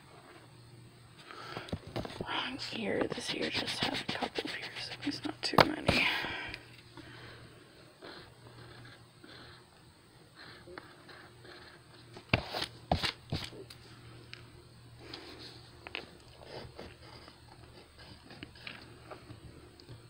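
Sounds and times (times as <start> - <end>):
pencil scratching on paper: 3.0 - 5.5, 8.0 - 9.6, 10.4 - 13.5, 16.4 - 18.8
sharp knocks and handling noises: 5.4 - 6.1.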